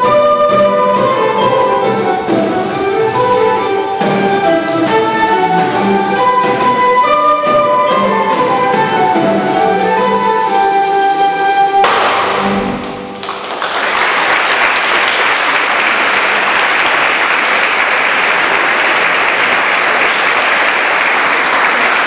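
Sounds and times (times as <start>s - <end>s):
audience applause: 12.8s - 22.0s.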